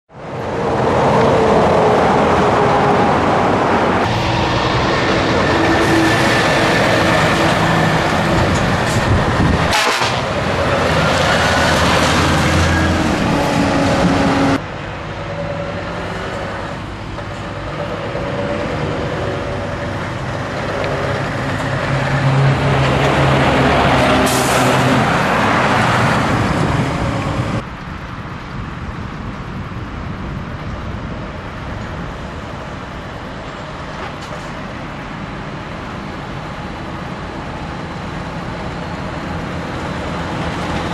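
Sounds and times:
truck engine revving: 0.4 - 14.6.

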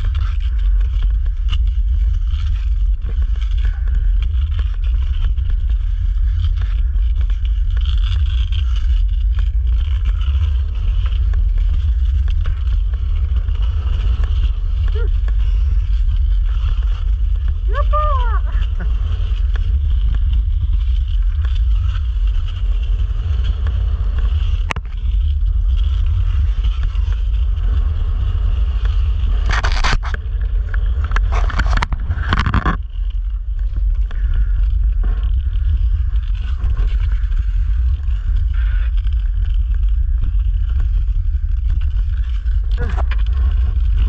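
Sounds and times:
hiss of gliding over ice: 0.0 - 44.0
wind buffeting microphone: 0.0 - 44.0.

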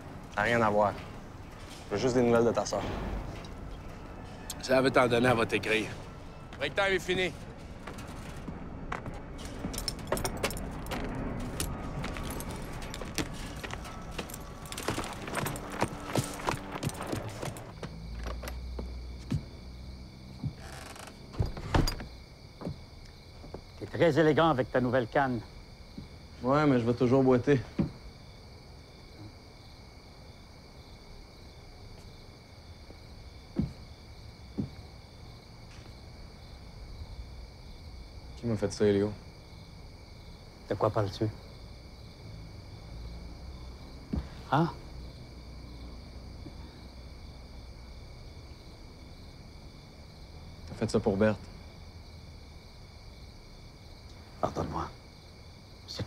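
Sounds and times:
crickets chirring: 0.0 - 56.0
hooves and gear knocking: 6.5 - 23.6
horse tack jingling: 9.4 - 18.6.

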